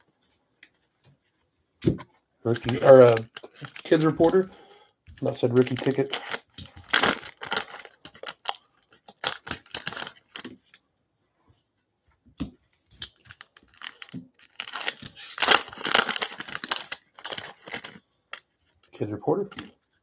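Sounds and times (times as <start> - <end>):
foil wrappers tearing and crinkling: 2.5 - 4.5, 5.2 - 10.8, 13.0 - 18.0.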